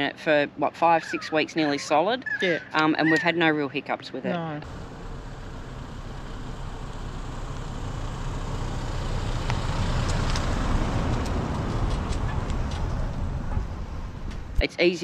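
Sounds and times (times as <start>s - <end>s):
vehicle engine passing: 4.6s - 14.6s.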